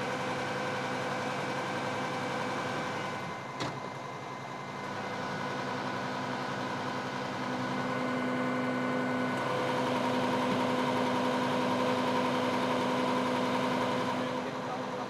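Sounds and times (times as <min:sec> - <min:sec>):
vehicle engine idling: 0:00.0 - 0:15.0.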